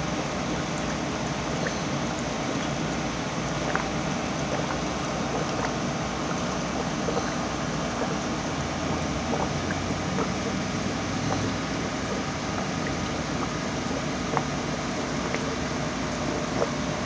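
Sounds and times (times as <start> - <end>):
aquarium filter water rushing: 0.0 - 17.0
bubbles popping: 0.0 - 17.0.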